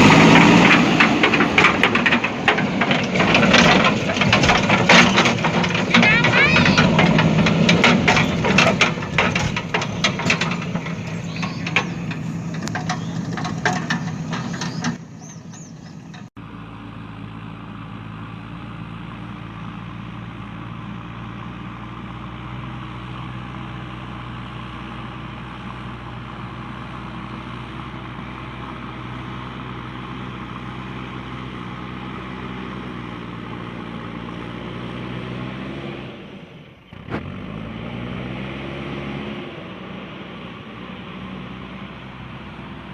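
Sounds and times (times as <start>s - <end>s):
large engine idling: 0.0s - 34.6s
clattering with sharp clicks: 0.4s - 16.4s.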